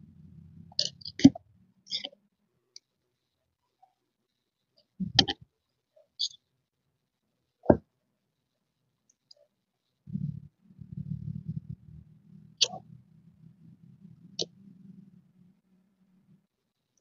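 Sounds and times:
low steady rumble: 0.0s - 1.8s, 10.1s - 16.5s.

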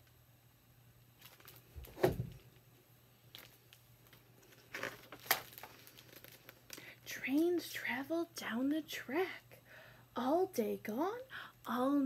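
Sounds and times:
paper pages turning: 3.4s - 6.9s.

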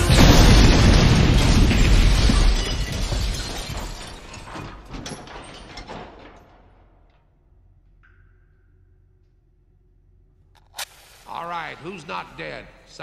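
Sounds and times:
explosion rumble: 0.0s - 4.1s
falling debris clatter: 0.0s - 7.2s.

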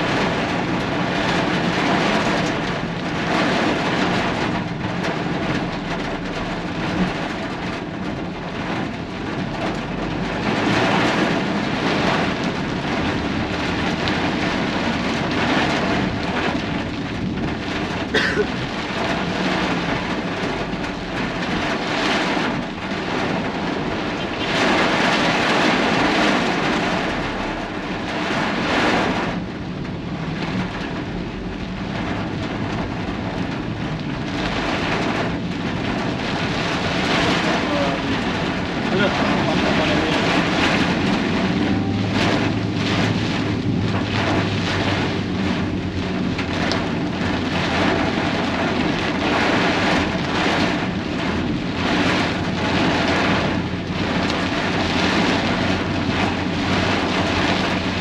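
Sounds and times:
gusting wind: 0.0s - 58.0s
rain: 0.0s - 58.0s
traffic hiss on wet road: 0.0s - 58.0s.

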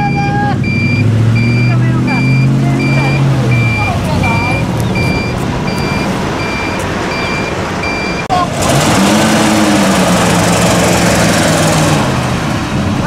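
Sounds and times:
reversing alarm beeping: 0.0s - 8.3s
pickup truck engine revving: 0.0s - 13.0s
vehicle noise: 0.0s - 13.0s.

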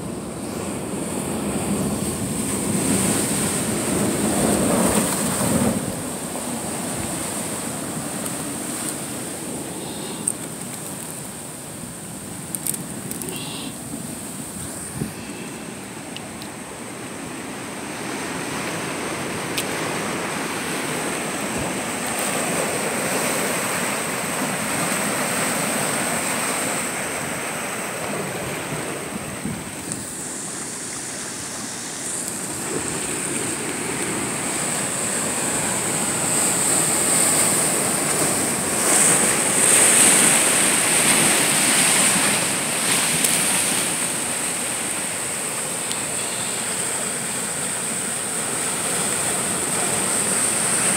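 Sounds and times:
ocean surf washing over rocks: 0.0s - 50.9s.

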